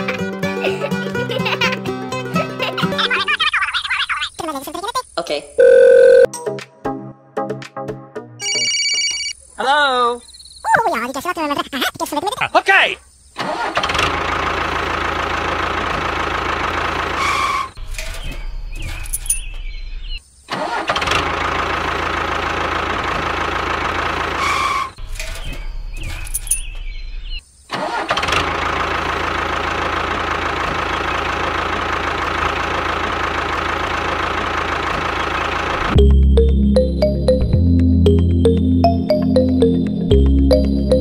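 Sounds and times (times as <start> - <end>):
engine running steadily: 13.9 - 17.7, 21.2 - 24.8, 28.2 - 39.0.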